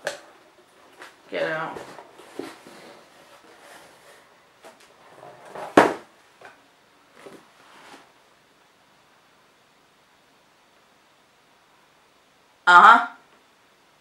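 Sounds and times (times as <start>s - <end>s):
cardboard rustling and scraping: 0.8s - 6.0s, 7.2s - 8.2s.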